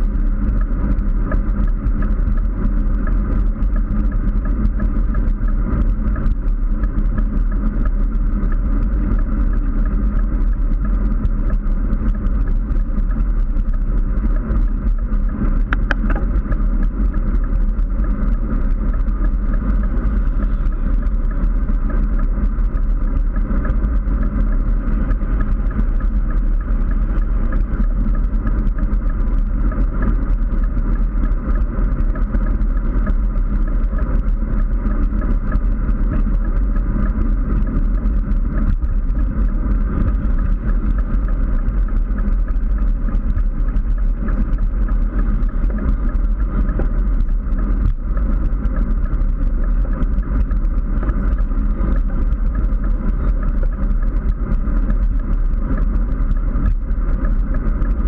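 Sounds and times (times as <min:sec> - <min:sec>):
wind rush on microphone: 0:00.0 - 0:58.0.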